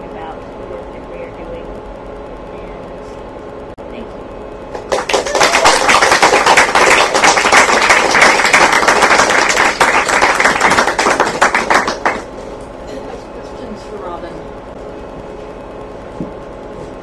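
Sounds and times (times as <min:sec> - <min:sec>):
audience applauding: 0:04.7 - 0:12.3.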